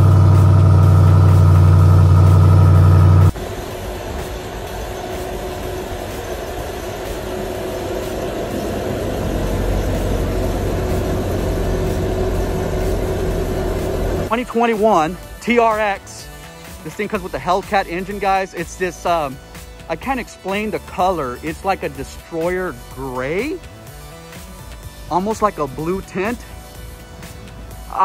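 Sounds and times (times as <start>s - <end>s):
faint steady whine: 0.0s - 14.3s
loud engine drone: 0.0s - 14.4s
low engine rumble: 0.0s - 28.0s.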